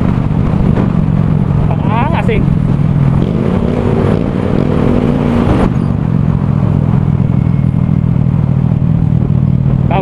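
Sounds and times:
loud rush of noise: 0.0 - 10.0
scooter engine exhaust note: 2.5 - 10.0.

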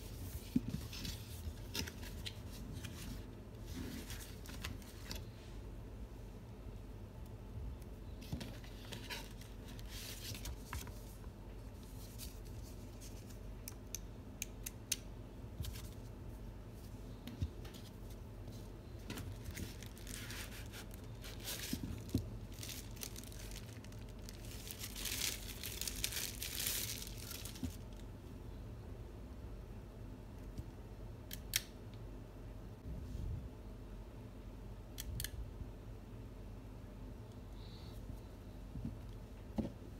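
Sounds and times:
cardboard and paper rustling: 8.2 - 11.2, 19.0 - 27.8.

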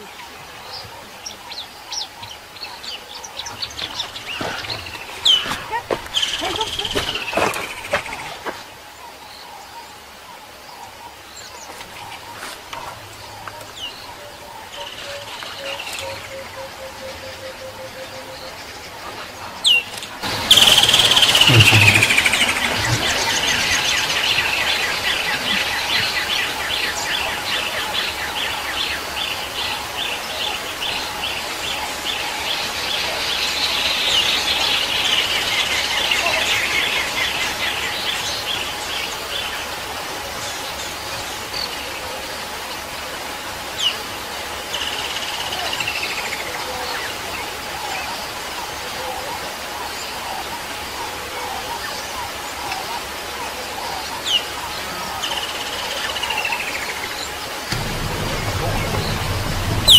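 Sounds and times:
bird fast high trill: 20.2 - 23.8, 57.8 - 59.9.

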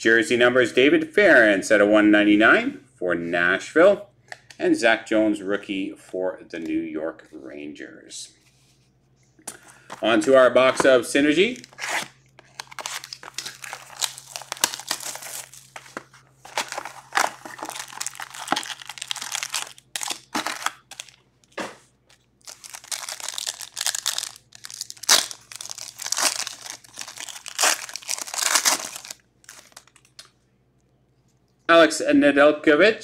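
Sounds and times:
plastic wrap tearing: 11.5 - 15.9, 16.5 - 21.6, 22.4 - 30.3
foil packs crinkling: 11.5 - 21.6, 22.4 - 30.3.

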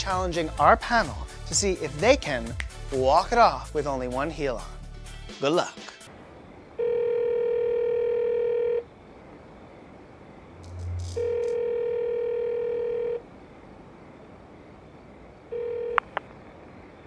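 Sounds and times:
telephone ringing tone: 6.8 - 8.9, 10.8 - 13.2, 15.5 - 16.2.

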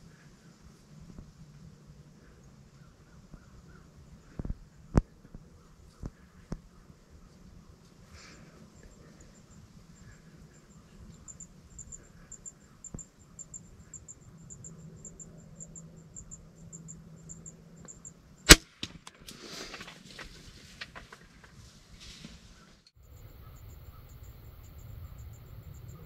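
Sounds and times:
insects chirping: 0.0 - 18.5, 23.0 - 26.0
crossbow firing crack: 18.5 - 19.4.

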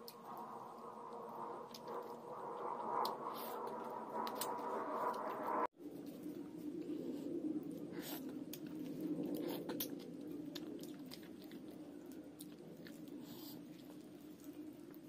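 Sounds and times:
steady low hum: 0.0 - 15.0
wet chewing and mouth sounds: 7.6 - 15.0.

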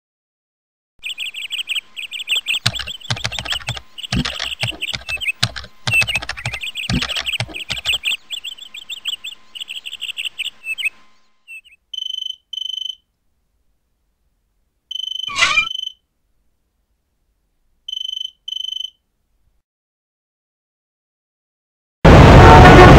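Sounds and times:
high-pitched chirping trills: 1.0 - 13.1, 14.9 - 16.0, 17.9 - 19.0
sharp clicks: 2.5 - 8.2
short steady beeps: 12.0 - 13.0, 14.9 - 16.0, 17.9 - 19.0.

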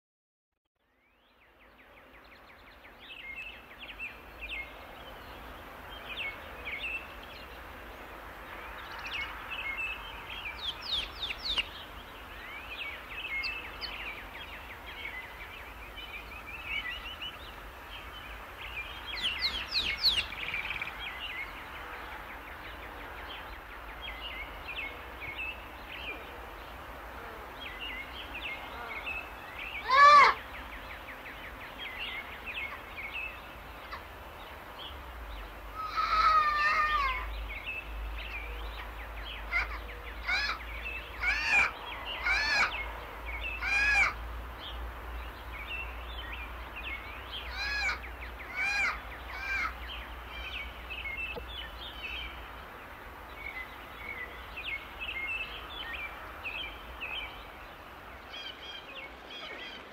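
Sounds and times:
small birds chirping: 0.8 - 59.9
steady background hiss: 0.9 - 59.9
loud bird call: 29.6 - 30.6, 35.7 - 37.4, 39.3 - 44.2, 47.3 - 51.4.

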